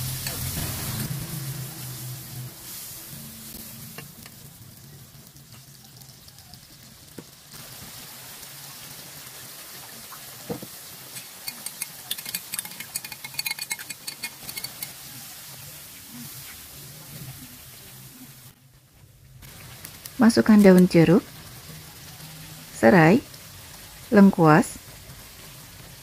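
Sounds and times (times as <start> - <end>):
spice paste sizzling in oil: 0.0 - 18.5, 19.3 - 26.0
spatula stirring in wok: 11.1 - 15.6.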